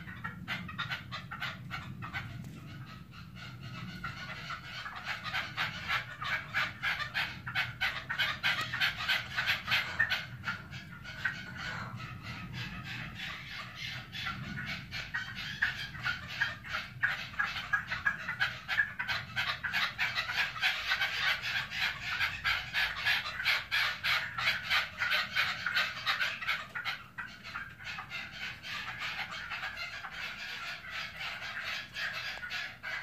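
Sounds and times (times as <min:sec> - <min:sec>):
partridges calling: 0:00.0 - 0:33.0.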